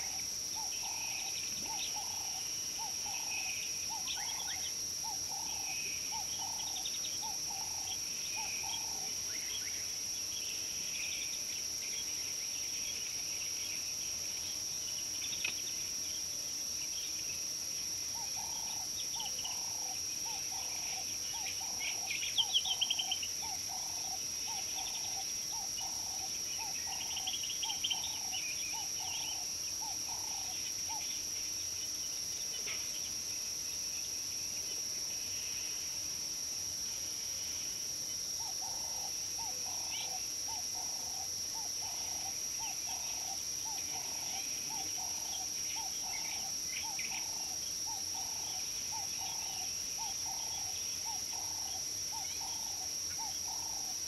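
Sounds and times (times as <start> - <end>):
high-pitched insect drone: 38.4 - 54.0.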